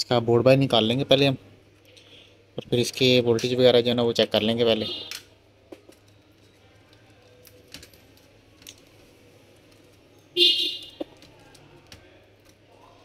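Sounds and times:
small plastic clicks: 0:05.1 - 0:10.0.

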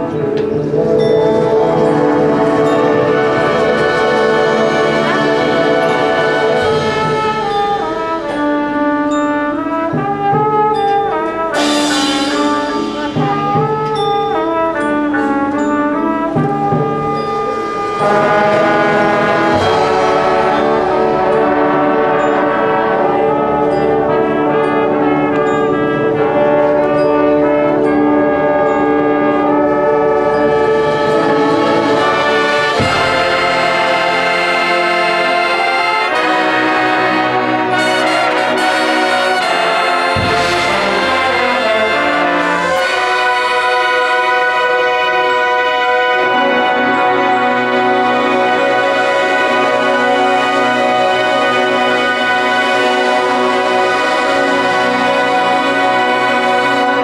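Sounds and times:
brass band playing chords: 0:00.0 - 0:57.0.

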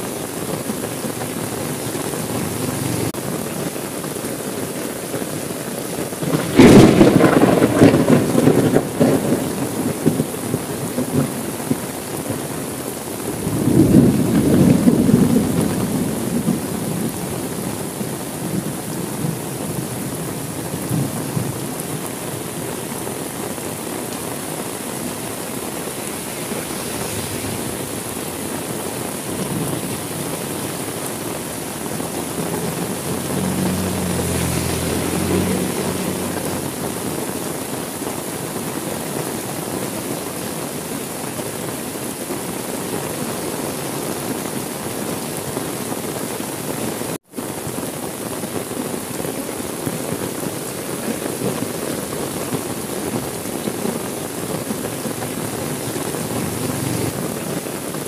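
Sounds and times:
heavy rain: 0:00.0 - 0:58.0
thunder rumbling: 0:06.2 - 0:12.5, 0:13.2 - 0:37.9, 0:51.4 - 0:57.7.

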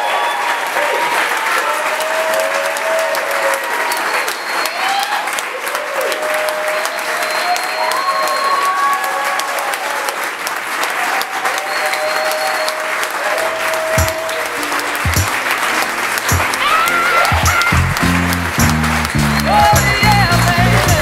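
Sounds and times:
guests applauding and cheering: 0:00.0 - 0:21.0
music with low bass: 0:17.4 - 0:21.0.

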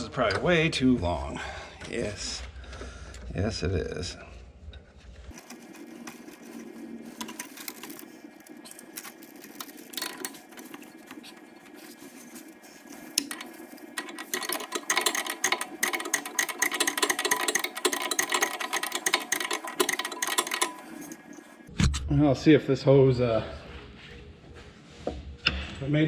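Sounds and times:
rapid clicking rattle: 0:13.0 - 0:21.4.

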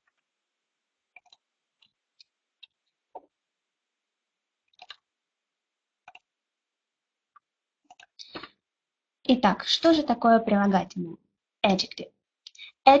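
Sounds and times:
computer mouse clicks: 0:01.1 - 0:03.3, 0:04.7 - 0:05.0, 0:06.0 - 0:06.3, 0:07.3 - 0:08.6.

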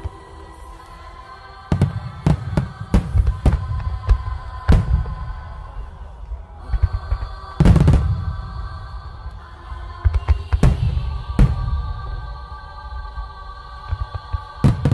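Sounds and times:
music with sustained tones: 0:00.0 - 0:14.9
fireworks bangs: 0:01.7 - 0:06.0, 0:06.7 - 0:08.8, 0:09.9 - 0:12.5, 0:13.8 - 0:14.9.

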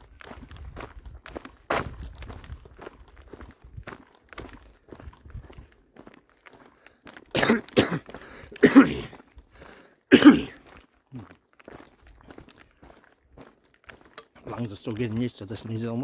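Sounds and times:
footsteps on gravel: 0:00.0 - 0:16.0
man coughing hard: 0:07.3 - 0:09.2, 0:10.1 - 0:10.6.

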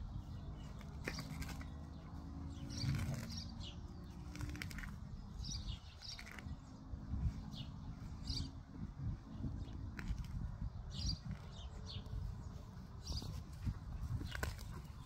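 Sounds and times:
small birds chirping: 0:00.0 - 0:15.0
grass rustling and tearing: 0:00.6 - 0:01.9, 0:02.5 - 0:06.6, 0:09.8 - 0:10.6, 0:13.3 - 0:15.0.

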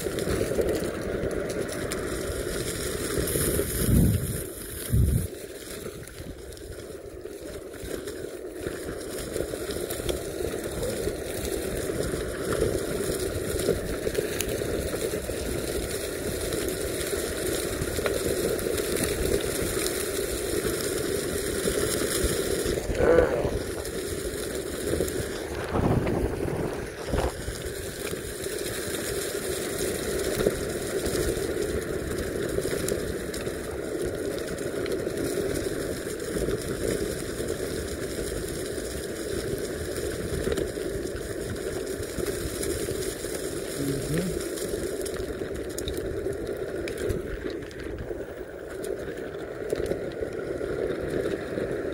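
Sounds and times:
skateboard rolling over dry leaves: 0:00.0 - 0:51.9
wind on microphone: 0:03.2 - 0:05.3, 0:24.8 - 0:27.8.

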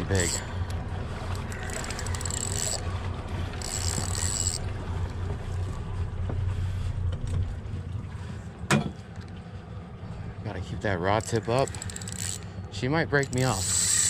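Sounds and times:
outboard motor running: 0:00.0 - 0:14.0
water noise: 0:00.0 - 0:14.0
fishing reel drag buzzing: 0:00.2 - 0:00.4, 0:01.5 - 0:02.8, 0:03.6 - 0:04.6, 0:11.2 - 0:12.6, 0:13.2 - 0:14.0.

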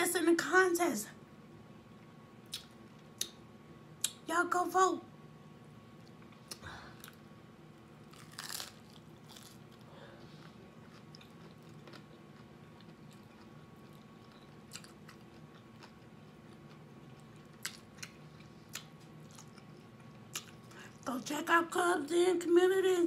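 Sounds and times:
quiet chewing: 0:06.0 - 0:07.2, 0:07.8 - 0:21.1
crunchy bite into taco: 0:08.0 - 0:20.6.

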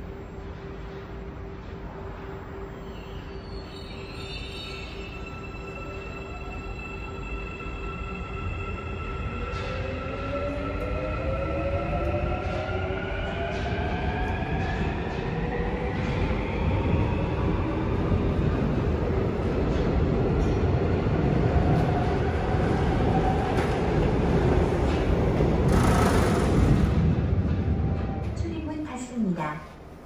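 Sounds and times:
wheels rumbling on rail: 0:18.1 - 0:28.7.

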